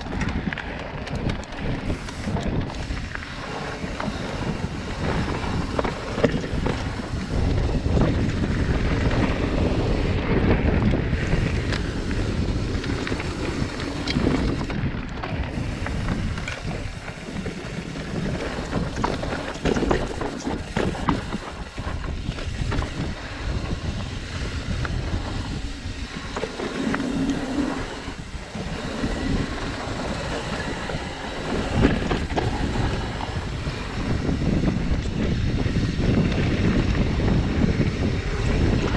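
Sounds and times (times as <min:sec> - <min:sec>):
bike clicking and rattling: 0:00.0 - 0:38.9
tyres rolling over dirt: 0:00.0 - 0:38.9
wind buffeting microphone: 0:00.0 - 0:38.9.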